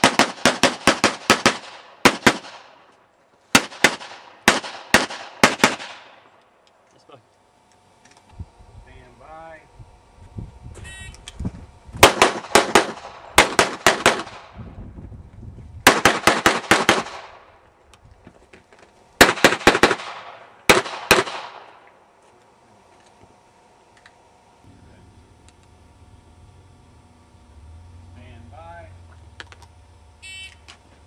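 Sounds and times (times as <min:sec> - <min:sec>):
rapid pistol fire: 0:00.0 - 0:02.8, 0:03.5 - 0:06.3, 0:12.0 - 0:14.6, 0:15.8 - 0:17.5, 0:19.2 - 0:21.8.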